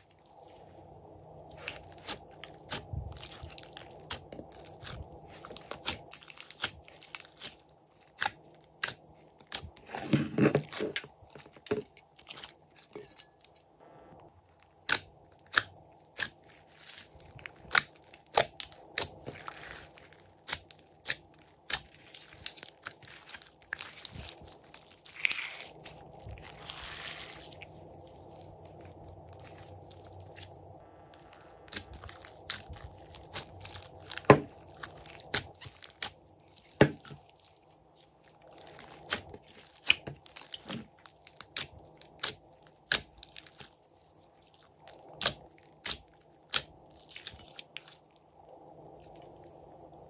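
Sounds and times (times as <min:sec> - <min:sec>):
slime squelching and popping: 0:01.5 - 0:12.6, 0:14.5 - 0:30.5, 0:31.1 - 0:48.1.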